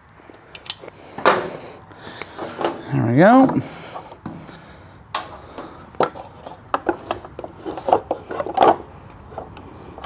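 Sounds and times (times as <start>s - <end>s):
tools and hardware clicking and knocking: 6.0s - 9.6s.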